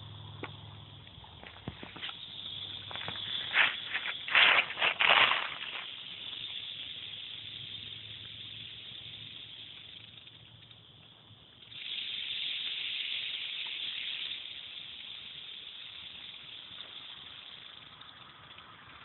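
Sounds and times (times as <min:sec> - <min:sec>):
rattlesnake rattling: 0:00.0 - 0:19.0
rustling through leafy plants: 0:03.3 - 0:05.9.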